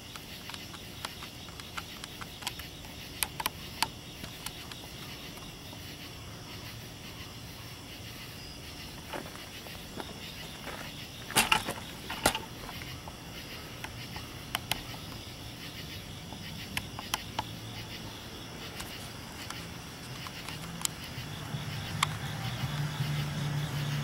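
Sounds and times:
sharp clicks: 0.0s - 5.8s, 11.2s - 18.0s, 18.6s - 23.2s
insects chirring: 0.0s - 24.0s.

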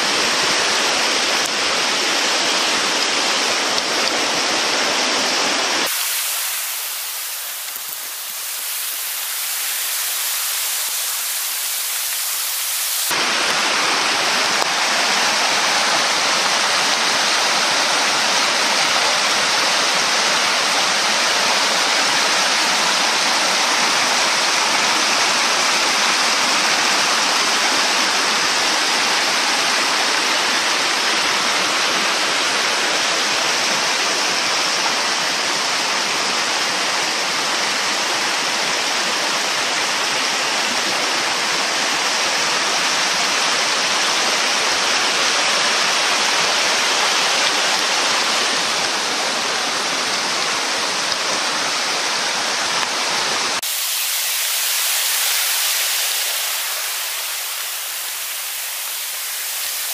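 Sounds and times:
steady rushing noise: 5.8s - 15.7s.

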